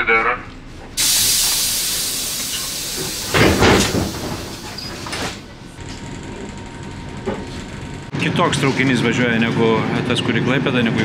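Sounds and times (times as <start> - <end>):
train doors thudding shut: 0.8 - 6.4
pneumatic door air hiss: 1.0 - 5.4
door clunk: 2.4 - 6.0.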